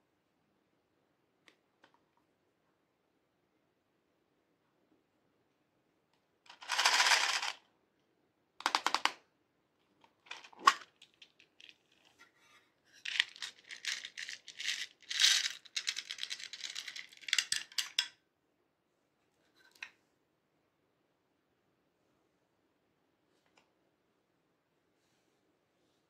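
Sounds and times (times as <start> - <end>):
plastic charms rattling in a box: 6.5 - 7.6, 13.1 - 18.0.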